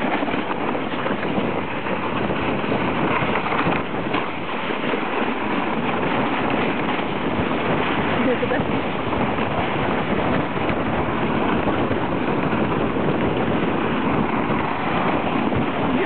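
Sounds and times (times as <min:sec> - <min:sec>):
sleds scraping over snow: 0:00.0 - 0:16.0.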